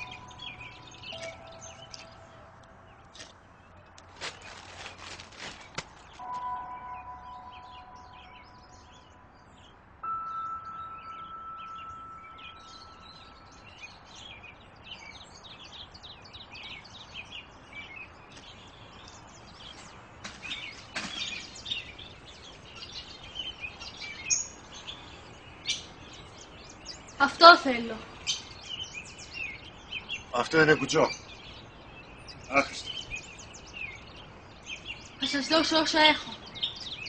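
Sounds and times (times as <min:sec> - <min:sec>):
small birds chirping: 0:00.0 - 0:37.0
ringing tone: 0:06.2 - 0:09.2, 0:10.0 - 0:13.7.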